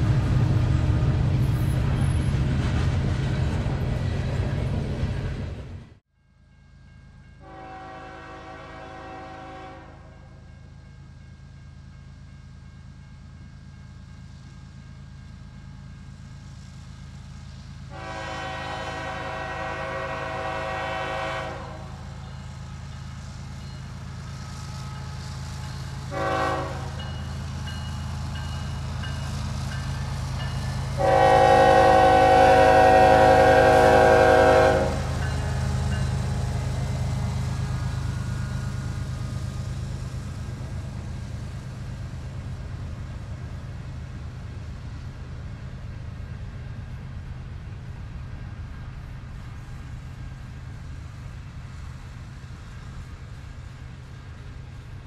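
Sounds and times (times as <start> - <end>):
locomotive engine drone: 0.0 - 6.0, 9.9 - 55.0
train air horn blasts: 7.4 - 10.4, 17.9 - 22.1, 26.1 - 27.1, 31.0 - 35.5.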